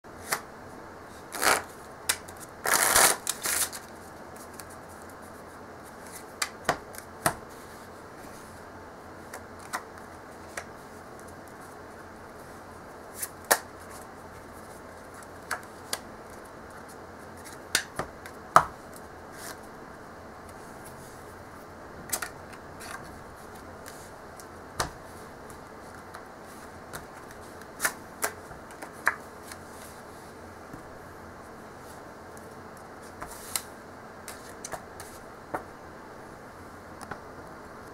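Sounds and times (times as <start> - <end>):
playing cards rustling: 1.1 - 8.6, 22.1 - 30.8, 31.8 - 35.7.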